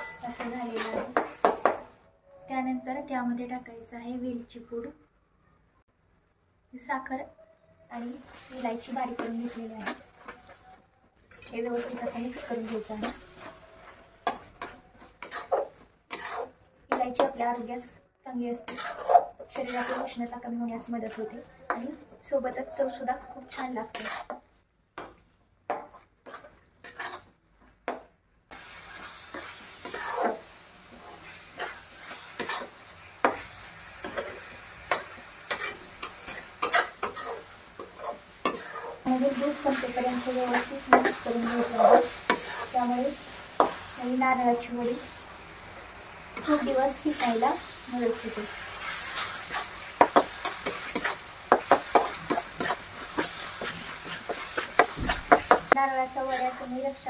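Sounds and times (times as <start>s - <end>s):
metal spatula scraping a pan: 0.0s - 2.0s, 7.9s - 25.1s, 25.7s - 27.3s, 27.9s - 45.1s, 46.4s - 57.0s
hot pan sizzling: 0.0s - 2.1s, 7.9s - 57.0s
spatula tapping on pan: 1.2s - 1.9s, 25.0s - 25.9s.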